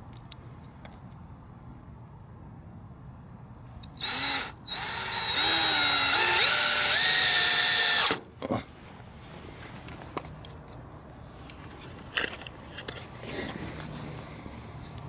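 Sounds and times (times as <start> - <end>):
cordless drill motor whine: 3.8 - 8.2.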